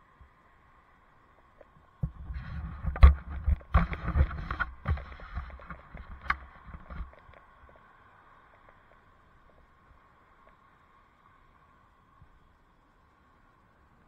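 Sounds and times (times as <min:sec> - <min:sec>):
wind buffeting microphone: 0:02.0 - 0:07.4.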